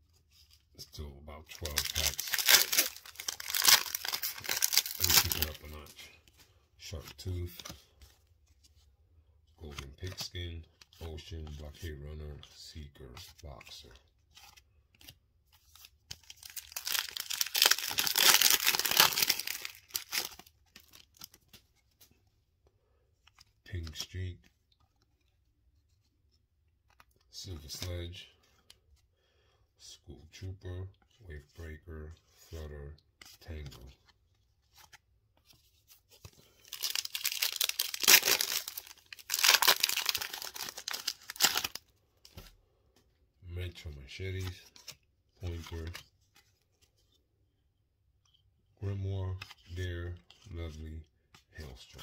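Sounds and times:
card pack wrapper crinkling and tearing: 0.9 - 6.0, 14.4 - 21.6, 36.2 - 42.5
foil ripping: 16.6 - 20.3, 36.7 - 41.8.

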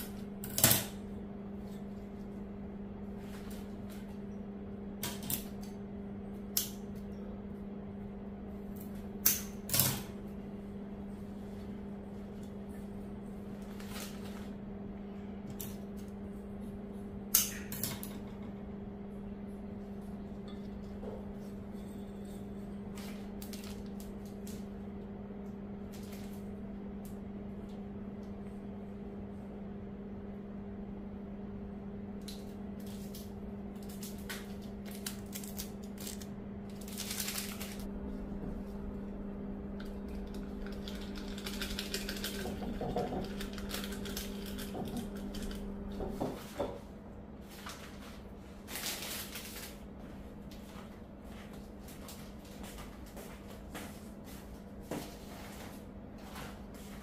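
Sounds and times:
steady electrical hum: 0.0 - 57.0
flower wrapping crinkling: 33.8 - 37.9, 47.6 - 49.8.

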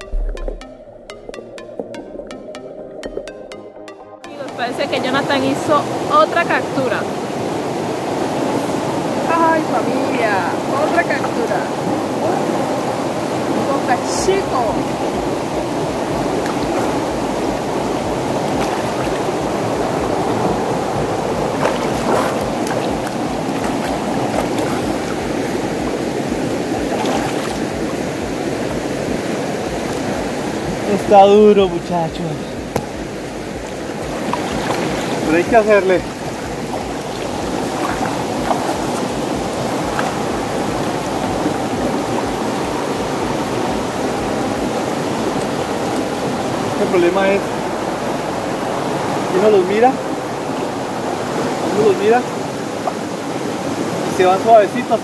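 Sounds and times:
river current rushing: 4.3 - 55.0
water splashes from swimmer: 13.3 - 30.8, 32.6 - 47.4.

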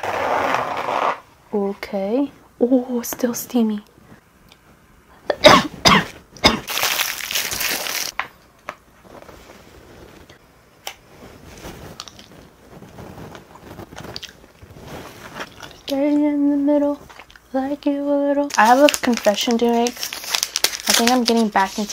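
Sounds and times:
loud rustle: 11.2 - 15.5
soft chewing: 11.9 - 12.6, 13.3 - 15.9, 17.0 - 17.5.

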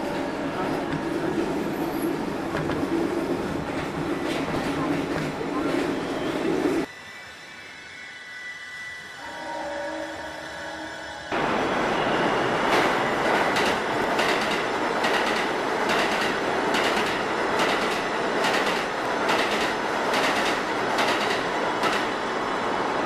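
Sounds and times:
train wheels rushing on rail: 11.3 - 23.0.

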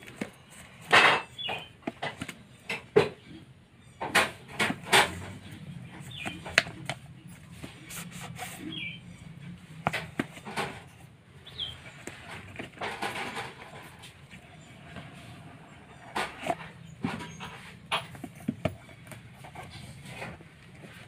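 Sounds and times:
cardboard box handled: 4.6 - 11.0, 16.2 - 21.0.

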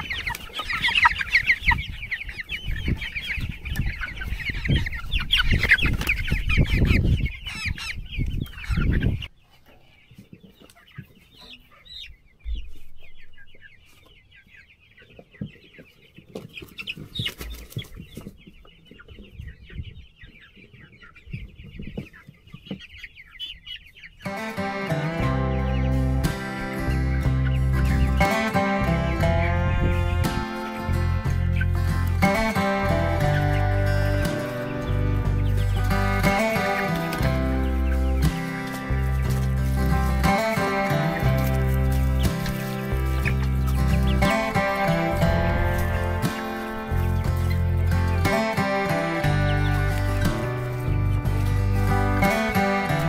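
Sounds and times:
chickens peeping and clucking: 0.0 - 53.0
guitar music: 24.2 - 53.0.

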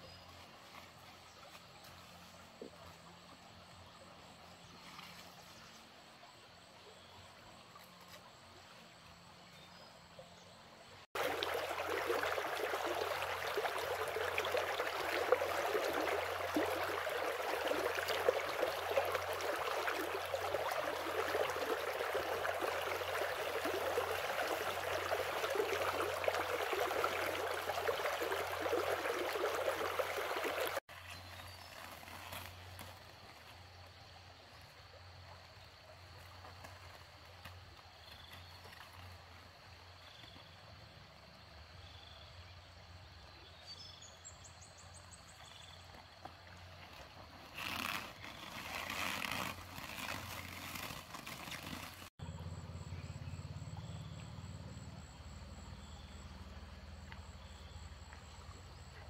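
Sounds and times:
stream water rushing: 11.2 - 30.8, 47.5 - 52.1.

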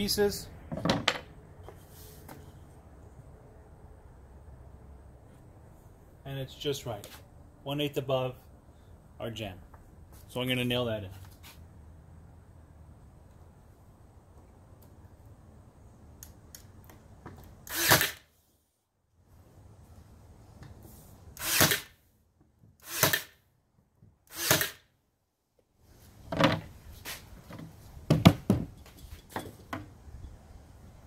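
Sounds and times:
nail gun firing: 17.7 - 18.2, 21.4 - 22.0, 22.8 - 23.4, 24.3 - 24.8.

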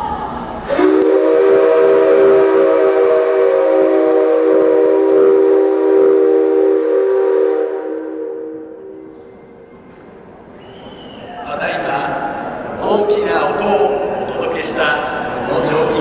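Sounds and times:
steam locomotive whistle: 0.6 - 9.6.

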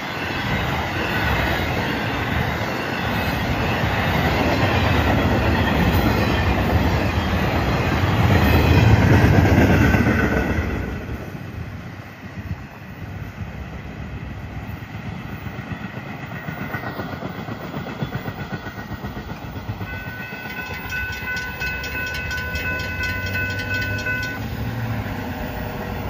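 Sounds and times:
railroad crossing bell ringing: 0.0 - 7.8, 19.8 - 25.6
freight train wheels rumbling: 0.0 - 26.0.

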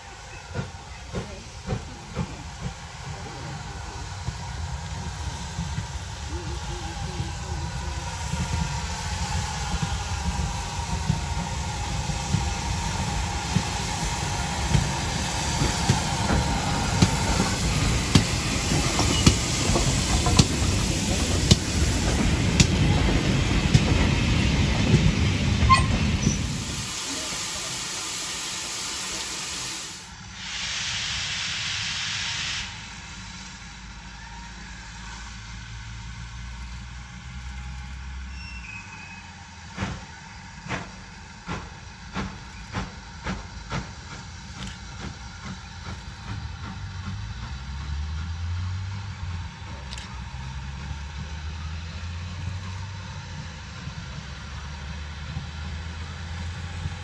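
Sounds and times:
steam engine beats: 0.0 - 34.0
steam hiss: 0.0 - 36.4, 38.2 - 57.0.

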